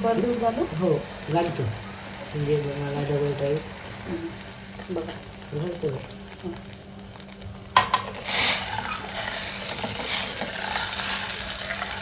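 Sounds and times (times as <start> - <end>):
ladle scraping and stirring: 7.9 - 12.0.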